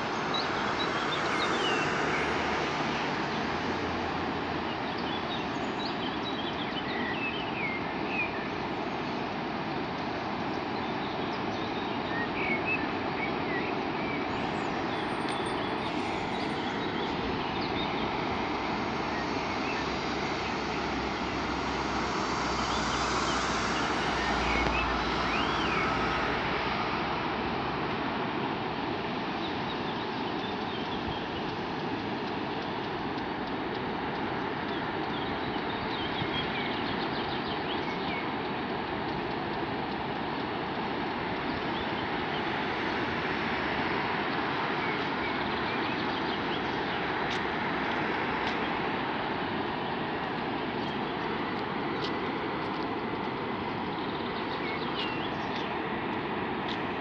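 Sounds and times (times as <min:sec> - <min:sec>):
steady rushing noise: 0:00.0 - 0:57.0
low rumble: 0:15.7 - 0:29.4.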